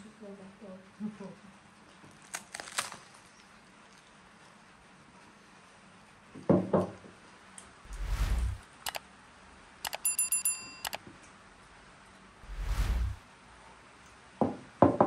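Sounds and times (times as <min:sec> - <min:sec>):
whoosh: 0:07.9 - 0:08.6, 0:12.4 - 0:13.2
mouse clicks: 0:08.0 - 0:09.0, 0:09.8 - 0:11.0
bell ringing: 0:09.9 - 0:11.0.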